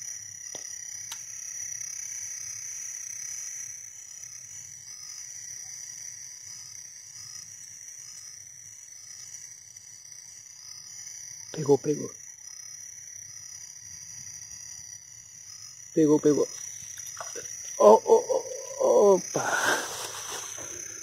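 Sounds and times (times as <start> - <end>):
short frog calls: 16.0 - 21.0.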